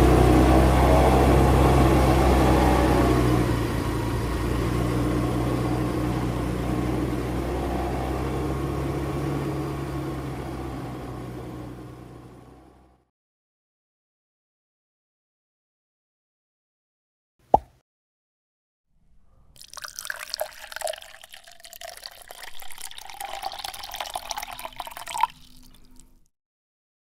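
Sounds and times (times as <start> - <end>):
scooter engine pulling away: 0.0 - 13.0.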